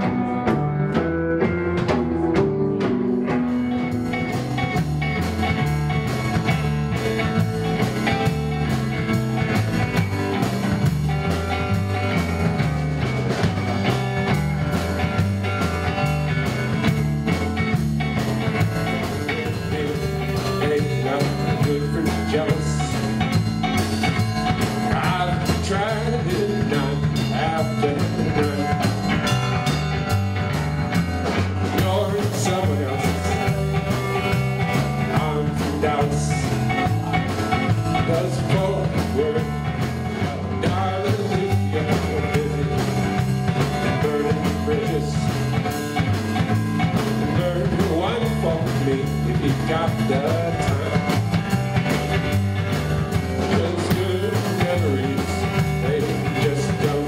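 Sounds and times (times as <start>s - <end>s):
drum kit with cymbals: 0.0s - 57.0s
upright double bass: 0.0s - 57.0s.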